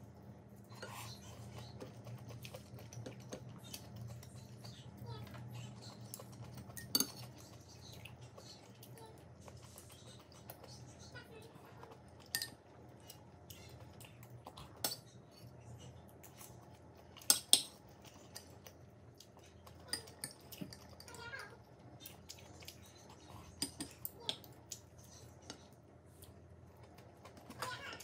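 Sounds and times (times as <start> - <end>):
faint low hum: 0.0 - 28.0
cutlery clinking on ceramic: 6.7 - 7.3, 12.3 - 12.6.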